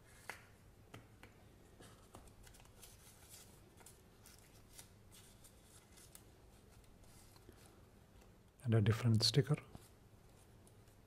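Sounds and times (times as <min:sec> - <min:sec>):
paper sheet crinkling: 0:01.8 - 0:07.8.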